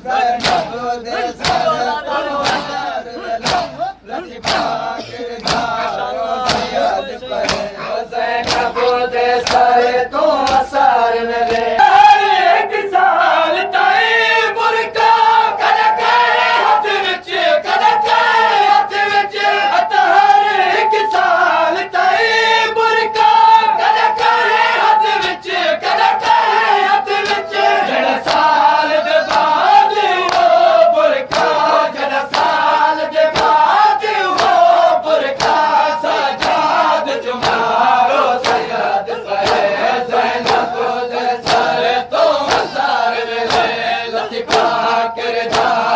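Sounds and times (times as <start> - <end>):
men chanting in unison: 0.0 - 45.9
hands striking chests: 2.4 - 2.8, 3.4 - 3.8, 5.4 - 5.8, 7.4 - 7.7, 8.4 - 8.8.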